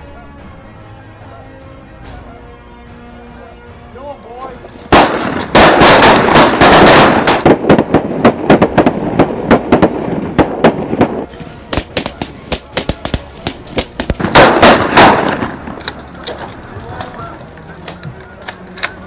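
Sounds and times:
shotgun fire: 4.9s - 8.8s, 9.5s - 15.7s.

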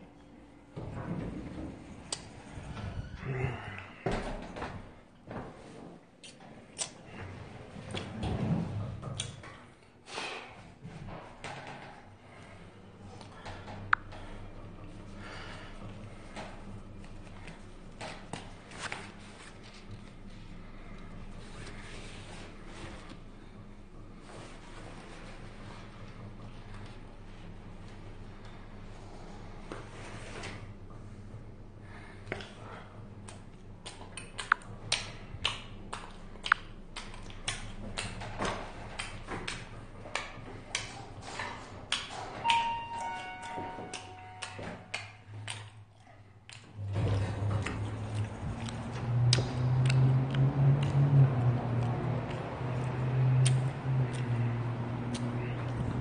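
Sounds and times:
low steady hum: 10.8s - 56.0s
brief pings: 42.4s - 44.8s
elevator chime: 42.4s - 45.4s.

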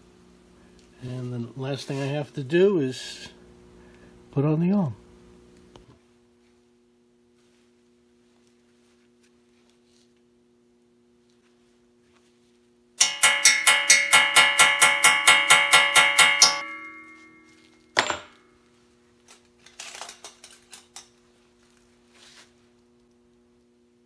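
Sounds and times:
hammer striking metal tool: 13.0s - 18.4s.

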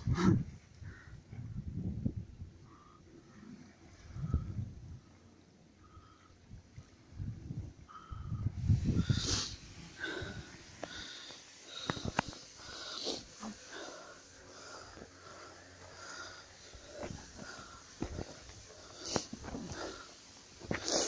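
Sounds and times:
person breathing heavily: 7.9s - 21.0s
footsteps on forest path: 16.1s - 21.0s.

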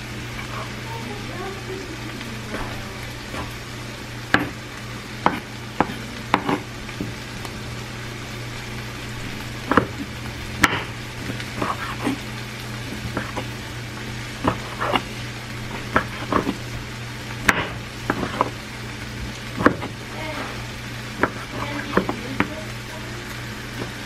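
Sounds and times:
low steady hum: 0.0s - 24.0s
meat sizzling in a pan: 0.0s - 24.0s
knife knocking on cutting board: 4.3s - 4.6s.

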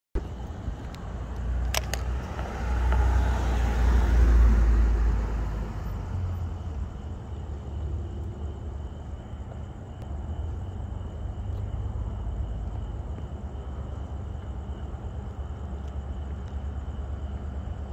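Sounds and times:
steady low rumble: 0.2s - 17.9s
vehicle passing by: 1.3s - 8.2s.

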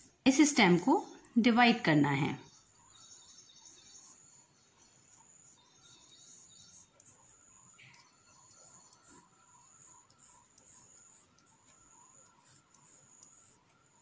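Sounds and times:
pencil strokes on paper: 2.4s - 14.0s.

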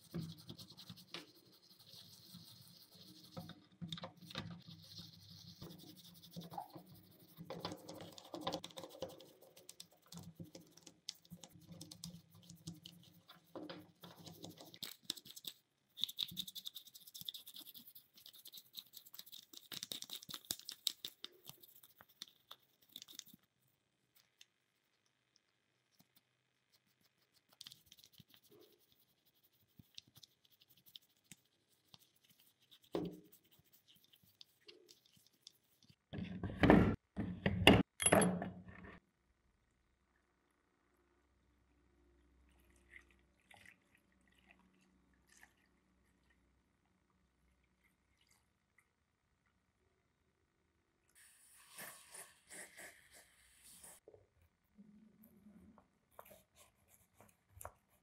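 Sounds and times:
toothbrush scratching metal: 0.0s - 23.8s, 26.7s - 36.0s.

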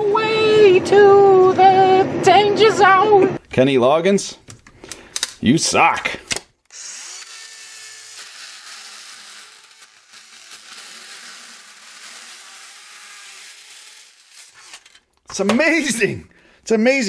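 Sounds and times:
mini chainsaw cutting plastic: 6.3s - 15.2s.

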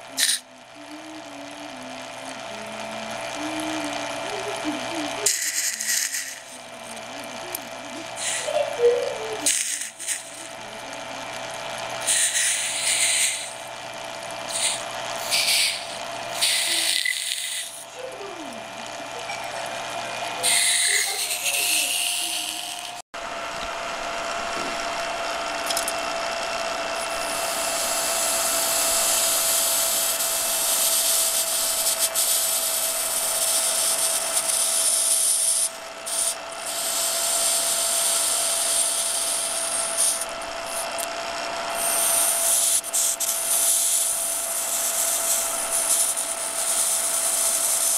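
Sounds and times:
steady electronic whine: 0.0s - 47.9s
hot metal sizzling and hissing in ice: 0.2s - 0.4s, 5.2s - 6.6s, 8.2s - 8.6s, 9.2s - 10.4s, 12.0s - 13.7s, 14.5s - 17.9s, 20.4s - 23.0s, 27.0s - 41.0s, 41.7s - 47.9s.

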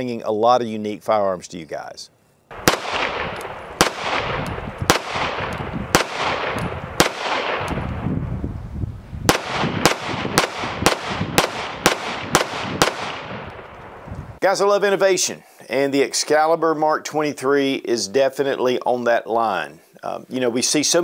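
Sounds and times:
pistol shots with echo: 2.5s - 8.0s, 9.3s - 14.0s.

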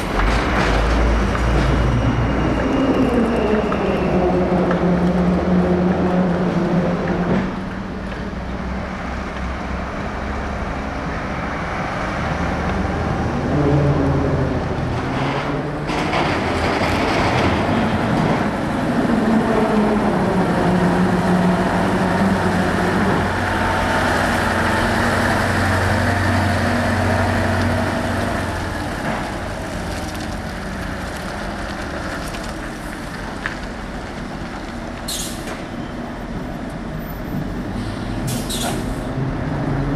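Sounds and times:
heavy truck diesel engines: 0.0s - 39.9s.

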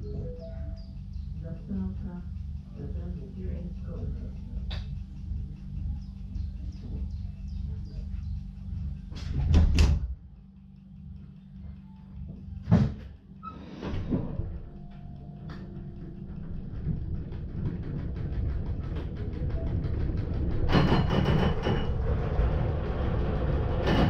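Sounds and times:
regular ticking: 0.0s - 13.5s, 14.2s - 23.9s
railcar equipment humming: 0.0s - 24.0s
heavy door clunks: 9.2s - 10.1s, 12.7s - 13.2s.

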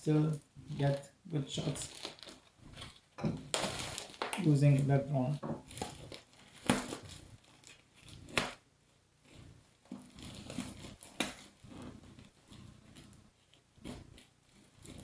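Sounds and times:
plastic wrap crinkling and tearing: 0.1s - 15.0s.

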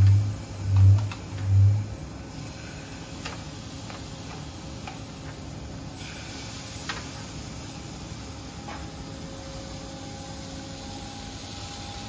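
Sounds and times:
brief low hum: 0.0s - 2.0s
scallops sizzling in a frying pan: 2.5s - 8.4s.

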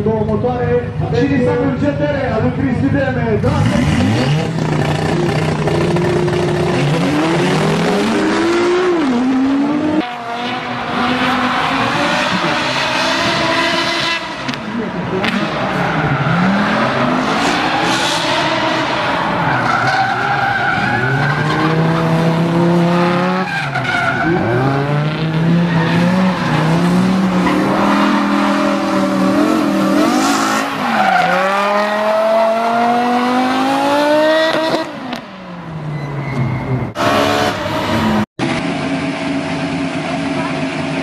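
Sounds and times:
car engine revving: 2.4s - 35.7s
tyres squealing: 15.5s - 22.1s.

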